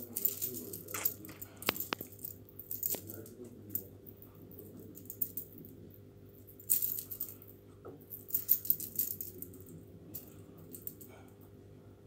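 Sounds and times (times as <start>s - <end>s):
metal chain jingling: 0.0s - 3.4s, 6.6s - 7.4s, 8.2s - 11.2s.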